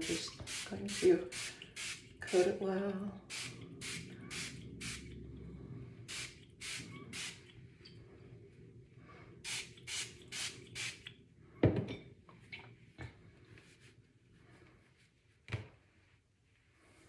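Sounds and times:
spray bottle hissing sprays: 0:00.0 - 0:02.0, 0:03.3 - 0:05.0, 0:06.1 - 0:07.4, 0:09.5 - 0:11.1.

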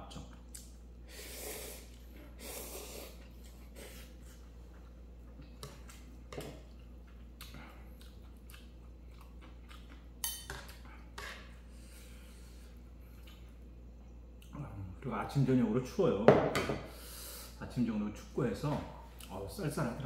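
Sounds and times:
steady low hum: 0:00.0 - 0:20.0
person chewing: 0:00.3 - 0:00.9, 0:01.7 - 0:11.2.

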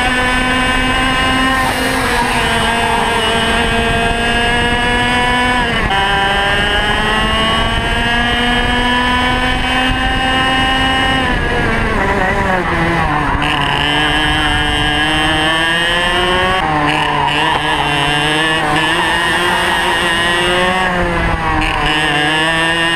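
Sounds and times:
wind rush: 0:00.0 - 0:16.8
kart engine at full throttle: 0:00.0 - 0:22.9.

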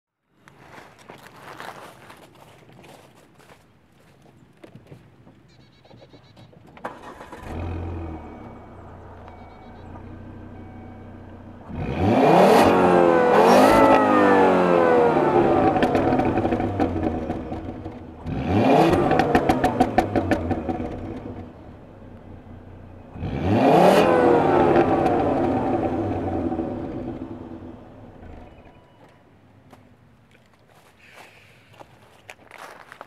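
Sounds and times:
car engine idling: 0:06.8 - 0:29.5
car engine revving: 0:06.9 - 0:28.8.

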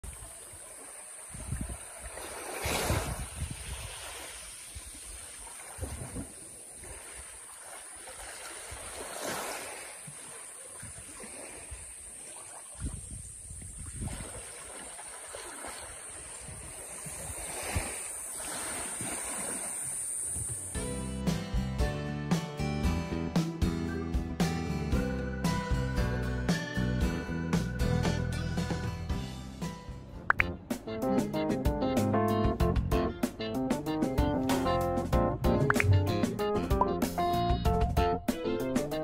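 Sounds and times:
small waves washing on sand: 0:00.0 - 0:20.7
wind buffeting microphone: 0:01.3 - 0:07.0, 0:12.7 - 0:14.6, 0:15.8 - 0:20.7.

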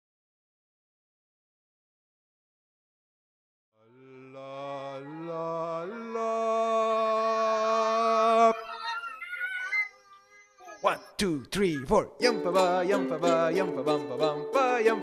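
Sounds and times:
softer wavering voices: 0:07.0 - 0:12.0.

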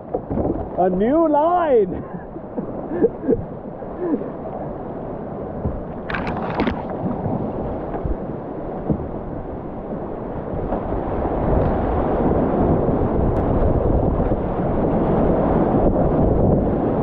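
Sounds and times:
paddle splash: 0:00.0 - 0:17.0.

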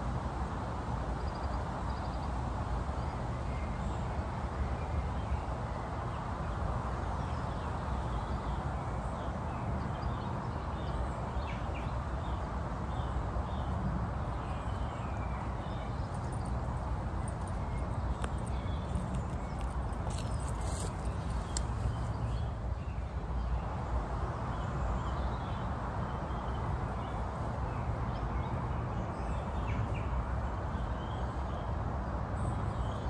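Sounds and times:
outdoor background rumble and hiss: 0:00.0 - 0:33.0
rustling of stems stripped by hand: 0:19.0 - 0:21.8.

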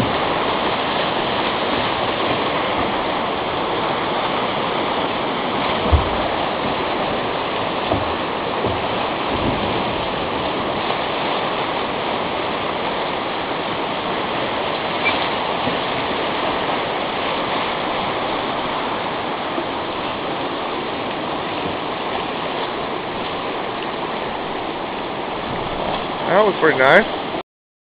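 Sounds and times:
whitewater rushing: 0:00.0 - 0:27.4
low thumps: 0:05.7 - 0:10.9.

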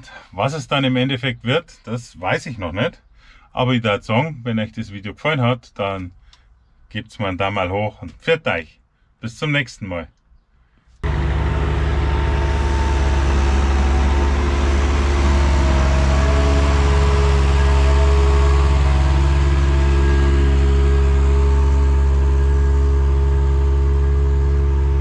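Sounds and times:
tractor engine under load: 0:11.0 - 0:25.0.

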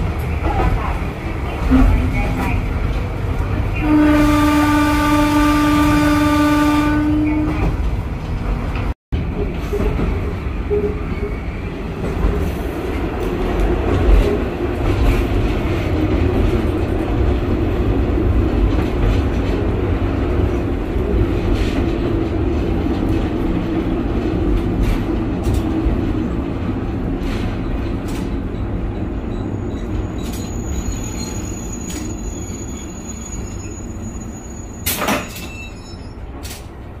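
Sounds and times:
diesel railcar engine drone: 0:00.0 - 0:37.0
rail rumble: 0:00.0 - 0:37.0
faint high brake squeal: 0:29.2 - 0:36.2.

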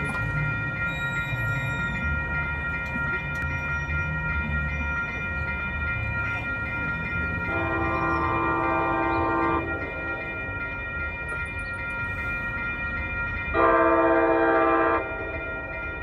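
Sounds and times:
railroad crossing bell ringing: 0:00.0 - 0:16.0
locomotive air horn blast: 0:07.5 - 0:09.7, 0:13.6 - 0:15.1.

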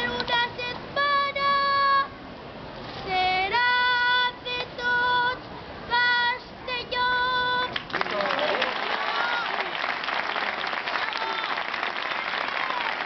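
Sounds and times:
boy singing: 0:00.0 - 0:02.2, 0:03.0 - 0:07.8.

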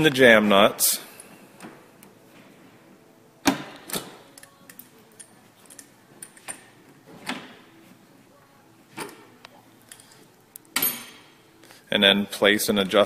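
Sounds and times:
wrench clinking on metal nuts: 0:09.8 - 0:11.3.

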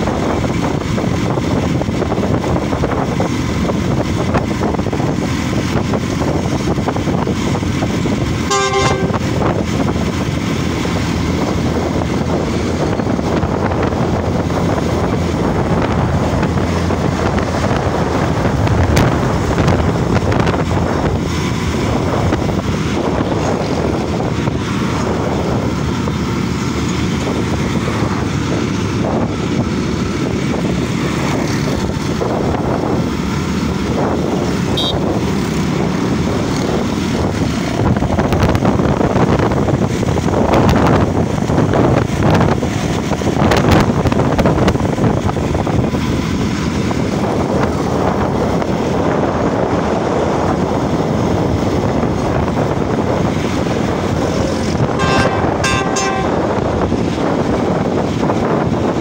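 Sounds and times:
train wheels rumbling on track: 0:00.0 - 0:59.0
wind on microphone: 0:00.0 - 0:59.0
brief high tone: 0:08.5 - 0:09.2, 0:55.0 - 0:56.4
train knocks: 0:54.5 - 0:57.7.

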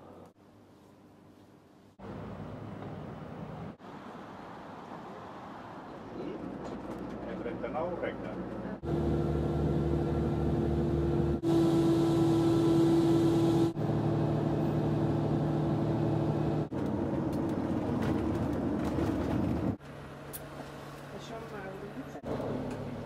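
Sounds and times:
road noise: 0:02.0 - 0:23.0
ship engines droning: 0:08.4 - 0:17.3
car engine: 0:08.4 - 0:20.2.

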